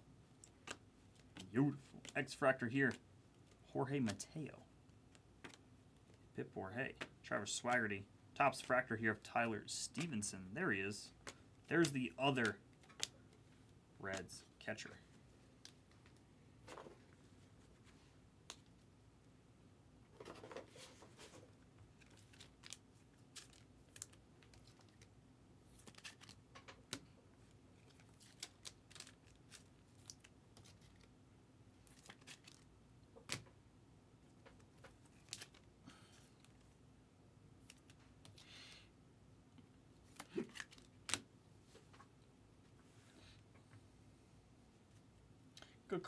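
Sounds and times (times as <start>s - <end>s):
cards and wrappers being handled: 0.4s - 6.2s, 11.0s - 14.9s, 20.2s - 31.1s, 31.8s - 33.5s, 34.3s - 36.8s, 37.6s - 38.8s, 40.0s - 41.3s.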